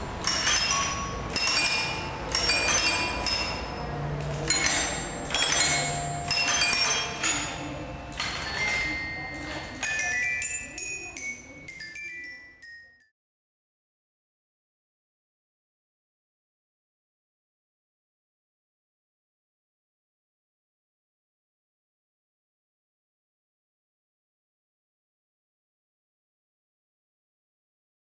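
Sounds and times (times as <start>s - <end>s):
mechanical clack: 0.0s - 10.4s
metallophone bars ringing: 0.0s - 13.1s.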